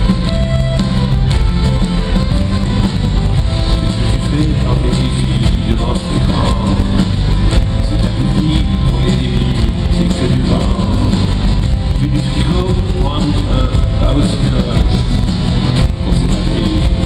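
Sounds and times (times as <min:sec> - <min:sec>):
live rock band: 0:00.0 - 0:17.0
man singing: 0:03.8 - 0:17.0.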